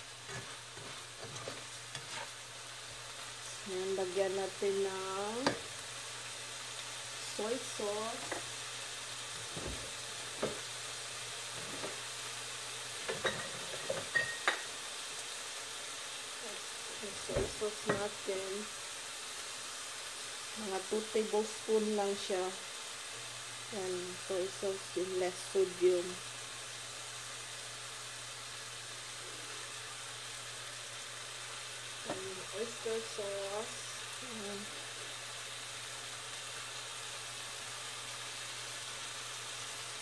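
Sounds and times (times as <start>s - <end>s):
onion sizzling in a frying pan: 0.0s - 40.0s.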